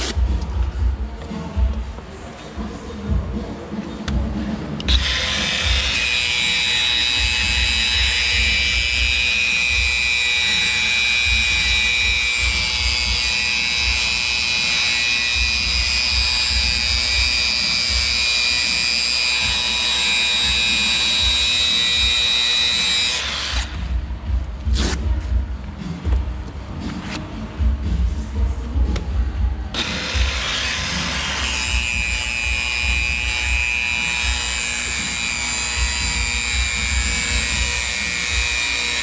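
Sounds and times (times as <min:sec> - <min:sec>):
angle grinder sanding metal: 0:04.9 - 0:23.7.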